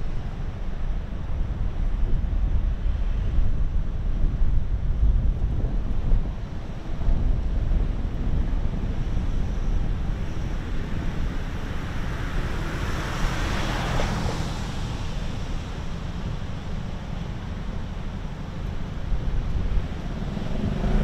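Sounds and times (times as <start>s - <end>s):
city traffic rumble: 0.0s - 21.0s
wind on microphone: 0.0s - 21.0s
car passing by: 11.2s - 16.6s, 19.5s - 21.0s.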